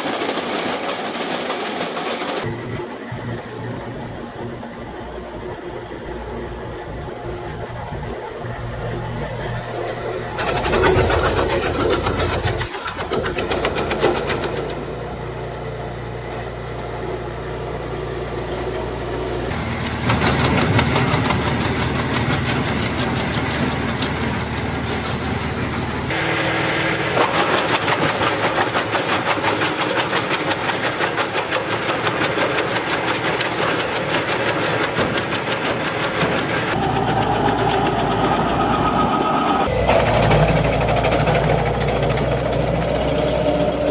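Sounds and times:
wood chipper engine drone: 2.4 - 43.9
wood crackling in chipper: 19.6 - 38.8.

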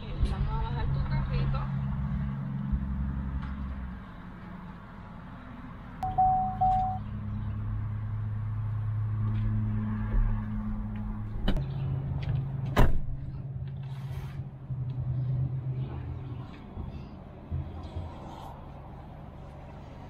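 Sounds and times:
car engine humming: 0.3 - 20.0
short beeps: 6.0 - 7.1.

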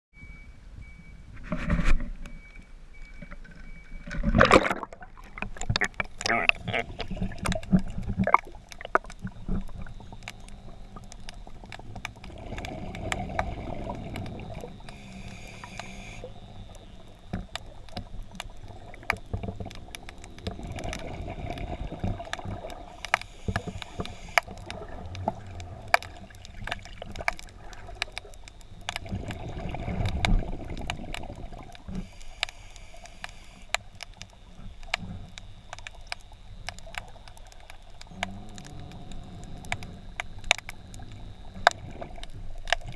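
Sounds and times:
small clicks in water: 1.6 - 42.9
rush of bubbles: 4.3 - 16.3, 19.8 - 28.2, 29.0 - 32.1
diver breathing through regulator: 12.3 - 16.3.

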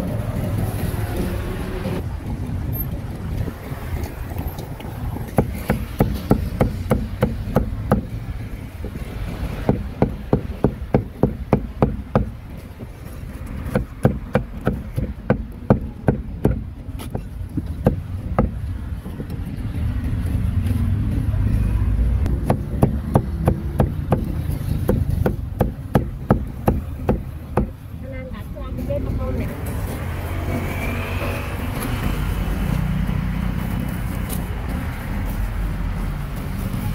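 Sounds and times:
low traffic rumble: 0.0 - 36.9
cleaver chopping on wooden block: 5.3 - 8.2.

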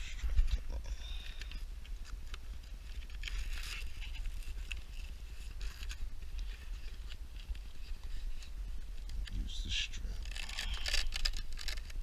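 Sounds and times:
clicks and rustles of handling wires: 0.0 - 12.0
steady low rumble: 0.0 - 12.0.

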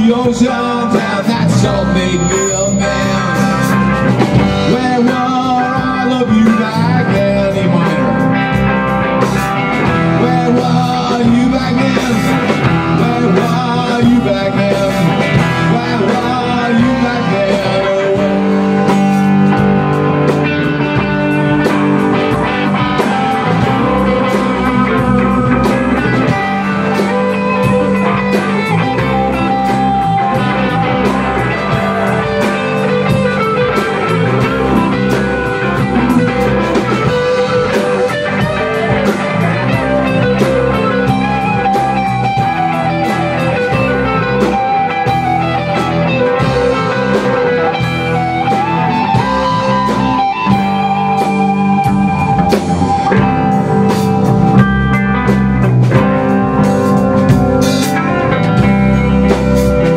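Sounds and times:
rock band playing live: 0.0 - 59.9.

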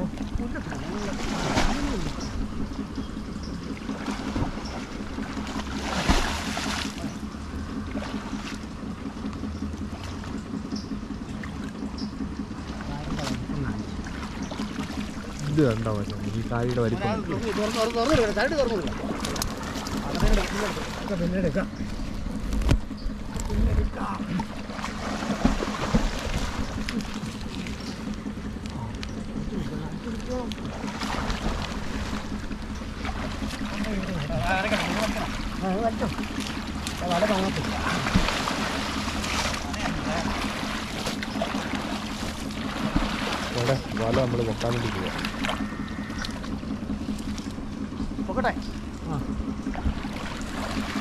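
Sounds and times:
steady low hum: 0.0 - 51.0
water sloshing: 0.0 - 51.0
loud water splash: 1.0 - 2.1, 5.7 - 6.9.

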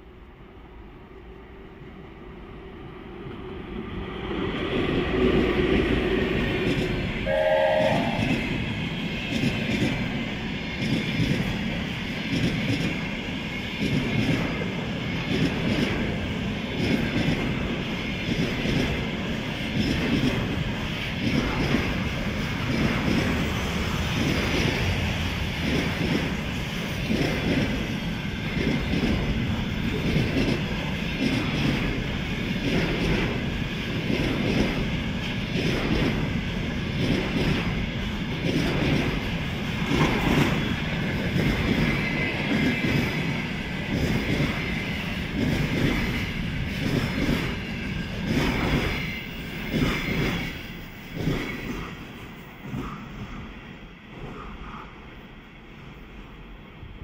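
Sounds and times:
train wheels clattering over rail joints: 32.6 - 53.1.

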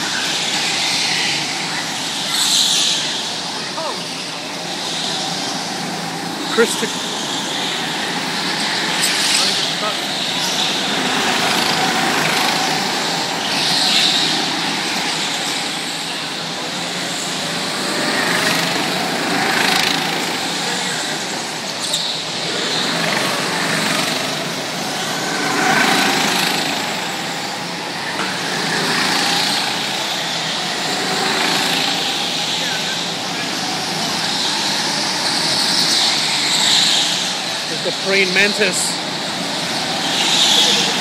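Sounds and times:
go-kart engines droning: 0.0 - 41.0.

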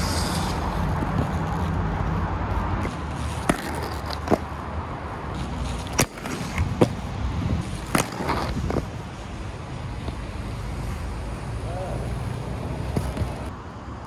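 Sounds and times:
inline skate wheels rumbling: 0.0 - 13.5
skates clacking on ramps: 3.3 - 4.4, 7.7 - 8.9.

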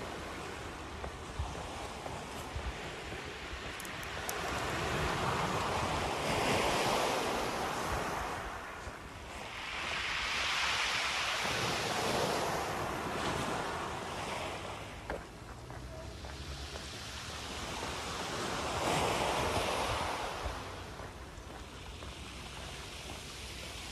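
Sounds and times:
small waves on shingle beach: 0.0 - 23.9.

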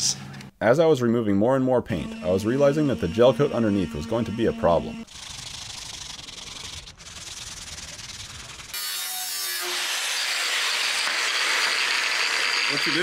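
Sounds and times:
sandpaper rubbing on boat hull: 5.1 - 8.8
angle grinder cutting steel: 7.7 - 13.0.

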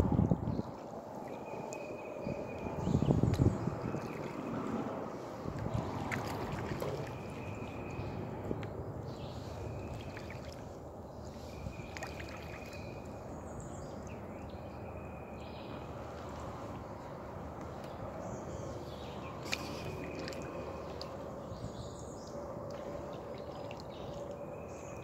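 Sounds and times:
paddle dipping in water: 3.4 - 13.2, 19.4 - 21.3
water dripping: 11.8 - 13.1, 19.4 - 21.2, 22.6 - 24.4.

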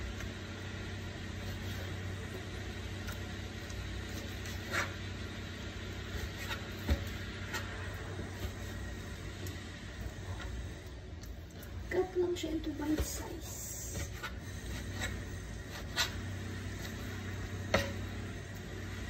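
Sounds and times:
knife cutting on cutting board: 4.1 - 5.0, 13.9 - 16.2.

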